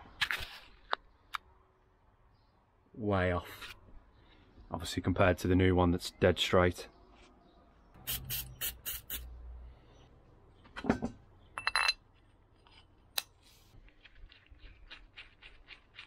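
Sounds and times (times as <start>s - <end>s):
metallic clatter with ring: 10.8s - 12.1s.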